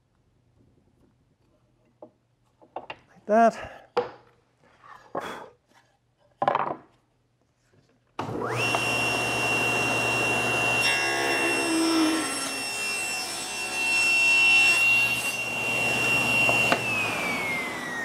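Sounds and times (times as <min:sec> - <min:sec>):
saw cutting wooden board: 0:08.2 - 0:18.0
table saw blade whining: 0:08.2 - 0:18.0.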